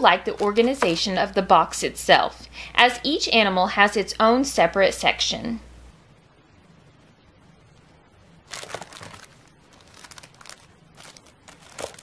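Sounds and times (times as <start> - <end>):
plastic bag crinkling: 0.3 - 1.1, 8.5 - 12.0.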